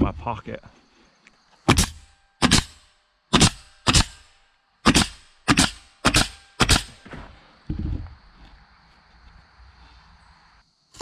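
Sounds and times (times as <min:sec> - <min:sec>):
nail gun firing: 0:01.7 - 0:07.0.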